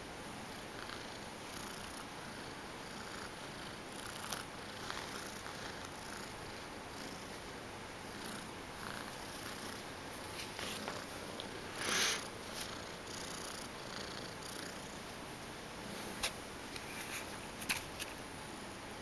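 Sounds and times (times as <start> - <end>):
cat purring: 0.5 - 9.9, 10.5 - 15.1.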